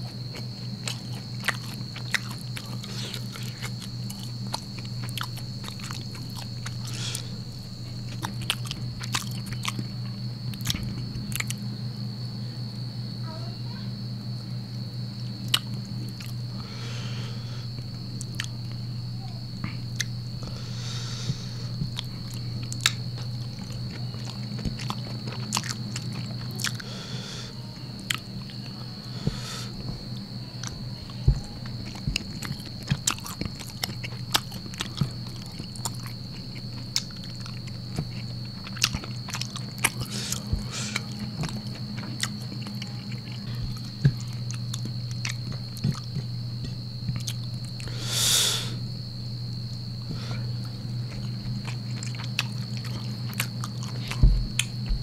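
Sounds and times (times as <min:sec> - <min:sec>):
person chewing food: 0:00.0 - 0:11.6, 0:15.4 - 0:18.8, 0:19.7 - 0:48.8, 0:49.6 - 0:55.0
faint high whine: 0:00.0 - 0:55.0
low hum: 0:14.4 - 0:55.0.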